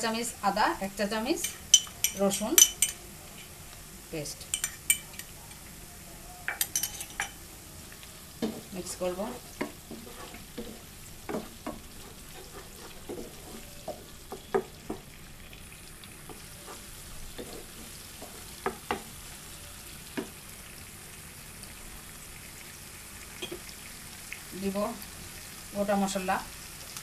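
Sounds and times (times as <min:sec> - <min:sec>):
onions sizzling in a pan: 0:00.0 - 0:27.0
utensil scraping and tapping pan: 0:08.4 - 0:15.1, 0:16.2 - 0:19.1.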